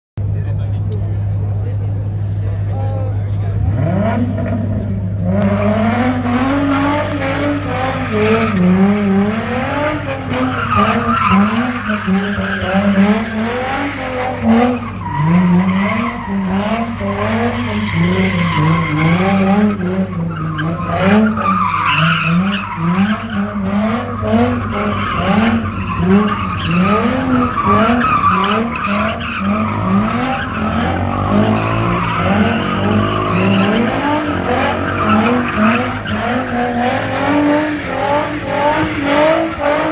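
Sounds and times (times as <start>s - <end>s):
car engine revving: 0.2s - 39.9s
tyres squealing: 20.4s - 37.0s.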